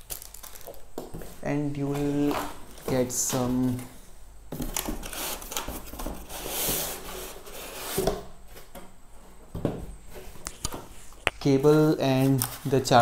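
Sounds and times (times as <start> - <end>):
cardboard scraping and rubbing: 4.7 - 8.6.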